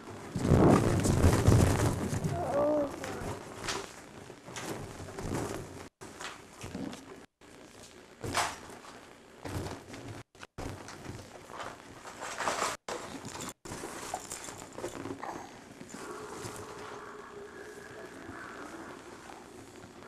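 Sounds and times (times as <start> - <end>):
people moving on hard floor: 7.8 - 17.1.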